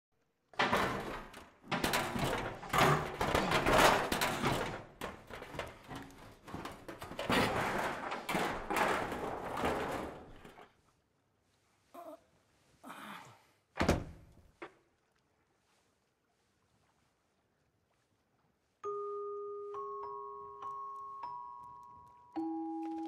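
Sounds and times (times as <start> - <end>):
sheet metal scraping and rattling: 0.6 - 10.6.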